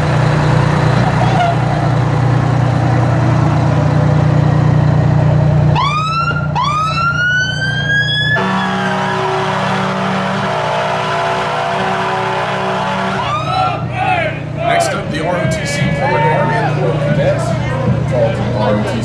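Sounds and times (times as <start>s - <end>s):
fire truck engine running: 0.0s - 19.0s
horn blast: 1.1s - 2.0s, 8.4s - 13.8s
siren whoops: 5.7s - 13.8s.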